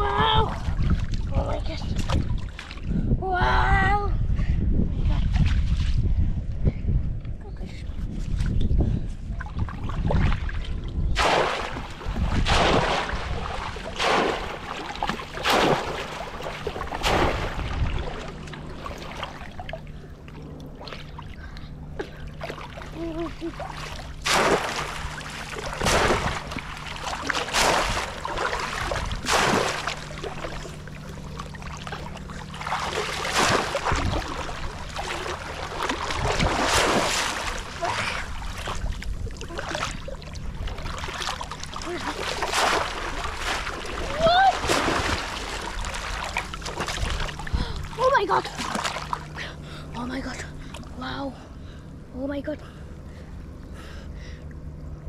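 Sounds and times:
splashing in shallow water: 0:09.4 - 0:49.5
hand slapping water: 0:11.2 - 0:19.8, 0:23.8 - 0:30.8, 0:31.9 - 0:37.8, 0:40.8 - 0:47.4.

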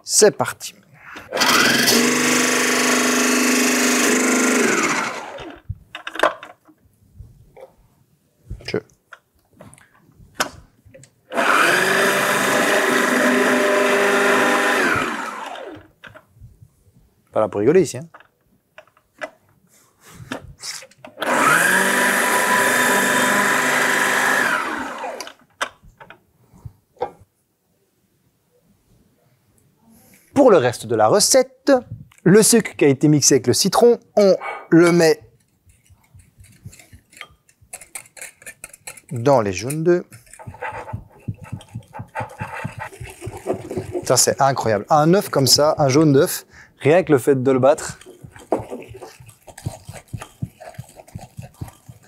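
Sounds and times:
food processor motor whine: 0:01.3 - 0:05.6, 0:11.3 - 0:15.9, 0:21.2 - 0:25.4.

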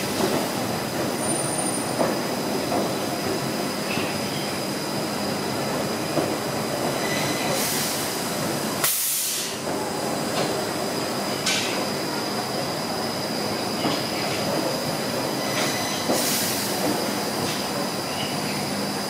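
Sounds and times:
train wheels on rails: 0:00.0 - 0:19.0
high squeal: 0:07.0 - 0:07.6, 0:15.3 - 0:16.1
air hiss: 0:07.5 - 0:09.7, 0:16.1 - 0:16.8.

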